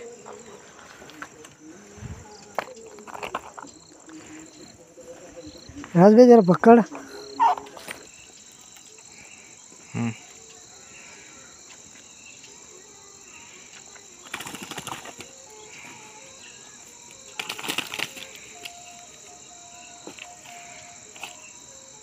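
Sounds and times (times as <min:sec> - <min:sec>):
crickets chirping: 0:00.0 - 0:22.0
fish flapping on ground: 0:14.2 - 0:15.4, 0:17.1 - 0:19.1.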